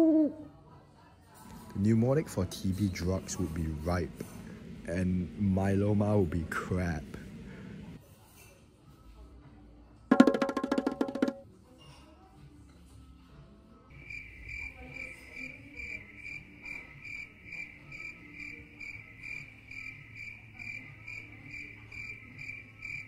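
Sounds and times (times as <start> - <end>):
low room hum: 1.6 - 8.0
cricket chirping: 13.9 - 23.0.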